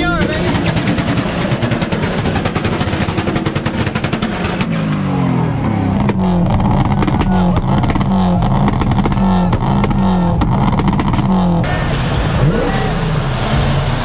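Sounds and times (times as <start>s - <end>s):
exhaust crackling pops: 0.0s - 5.1s, 6.0s - 13.5s
car engine revving: 0.0s - 14.0s.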